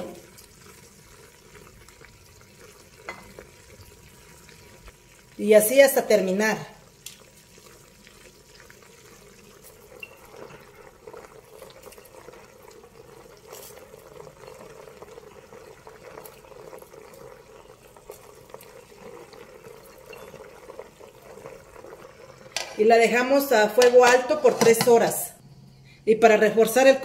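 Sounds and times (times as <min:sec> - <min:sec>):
water boiling in a pot: 0:00.0 - 0:25.4, 0:26.2 - 0:27.0.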